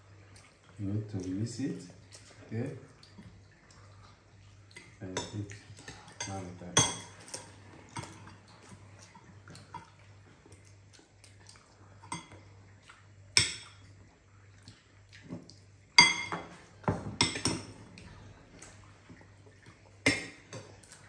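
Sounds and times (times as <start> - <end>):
spoons clinking against bowls: 6.1 - 8.2, 16.0 - 16.5.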